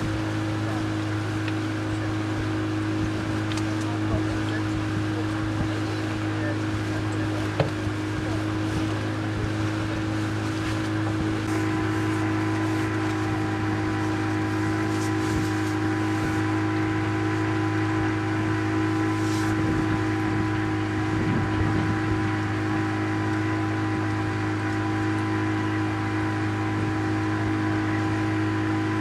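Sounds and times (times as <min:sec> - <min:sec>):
boat engine droning: 0:00.0 - 0:29.0
wind: 0:00.0 - 0:29.0
water hiss: 0:18.8 - 0:20.1.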